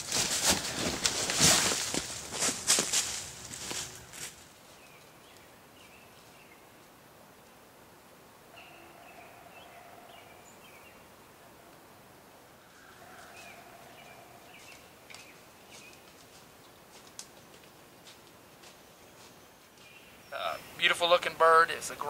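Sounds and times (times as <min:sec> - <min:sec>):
footsteps in dry leaves: 0:00.0 - 0:04.9, 0:13.0 - 0:20.0
birds chirping: 0:08.5 - 0:22.0.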